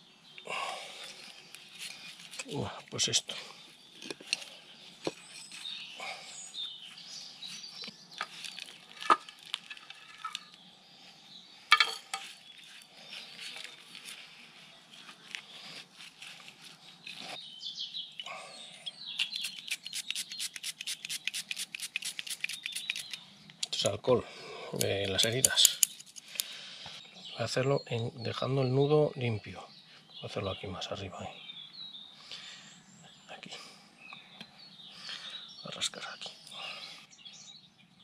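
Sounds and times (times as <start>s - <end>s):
soil rustling and crumbling: 0.9s - 5.9s, 6.6s - 10.6s
quick run of ticks: 19.2s - 23.2s.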